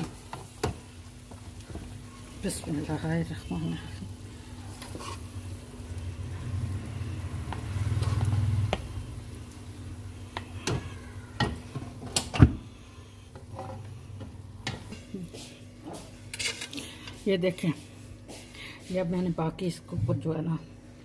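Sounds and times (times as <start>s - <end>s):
ladle scraping in metal pot: 4.8s - 5.3s, 16.3s - 16.8s.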